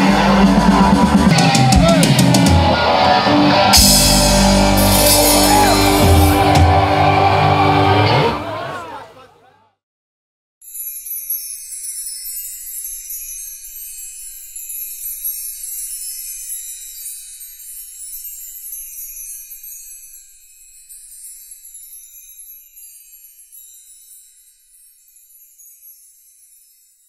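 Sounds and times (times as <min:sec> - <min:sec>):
glittering chime sparkle: 0:10.6 - 0:27.0.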